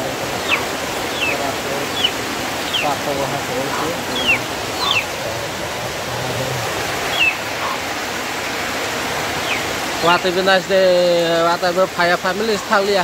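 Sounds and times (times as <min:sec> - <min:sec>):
steady rain hiss: 0:00.0 - 0:13.0
bird chirps: 0:00.3 - 0:07.8, 0:09.4 - 0:10.3.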